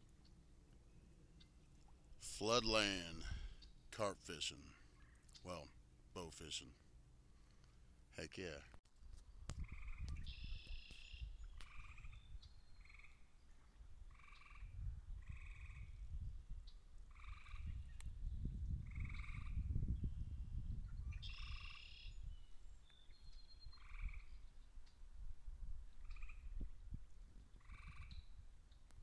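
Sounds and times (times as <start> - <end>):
frogs trilling: 12.8 - 13.2, 14.1 - 15.9, 17.1 - 17.7, 18.8 - 19.6, 23.7 - 24.3, 26.0 - 26.4, 27.6 - 28.2.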